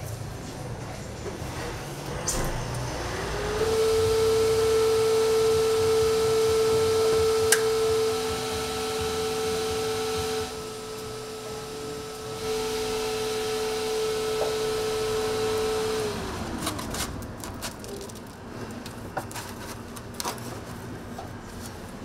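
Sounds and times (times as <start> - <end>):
small electric fan humming: 2.1 - 22.0
paper rustling: 16.6 - 22.0.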